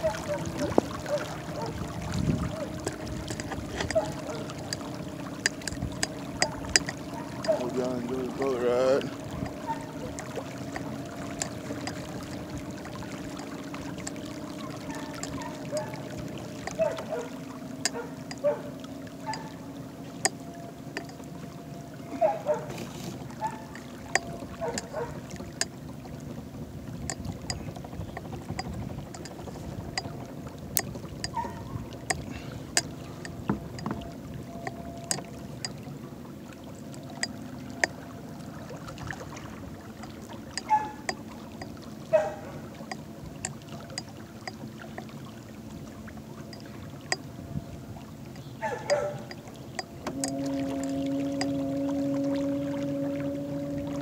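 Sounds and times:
water noise: 0.0s - 54.0s
light clicks and knocks: 2.7s - 16.0s, 16.6s - 17.1s, 27.0s - 35.8s.

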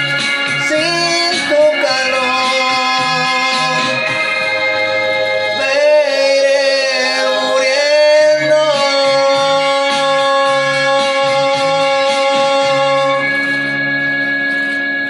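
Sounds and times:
bass line: 0.0s - 15.0s
keyboard chords: 0.0s - 15.0s
man singing: 0.5s - 13.4s.

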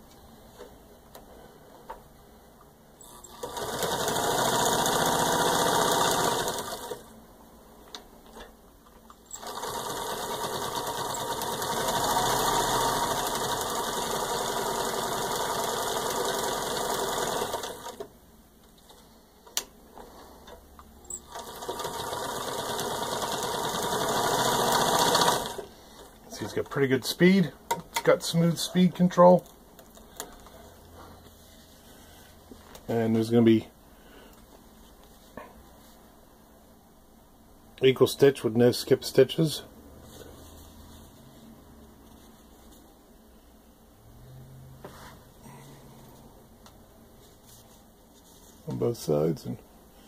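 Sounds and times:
sewing machine stitching: 3.0s - 7.1s, 9.3s - 18.1s, 21.1s - 25.7s.

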